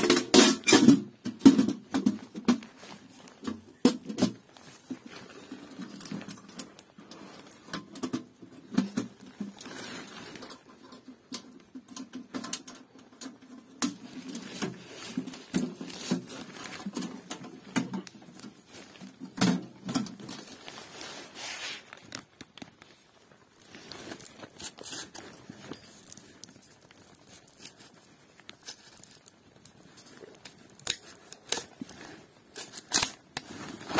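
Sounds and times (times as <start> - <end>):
metal clinks and scrapes: 23.7 - 33.9.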